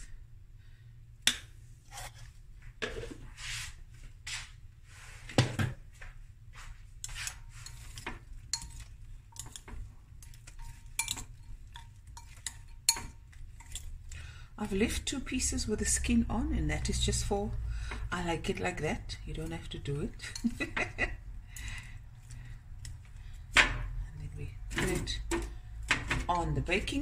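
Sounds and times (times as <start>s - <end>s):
metal spoon clinking on glass bowl: 7.5s - 13.9s, 20.2s - 20.8s.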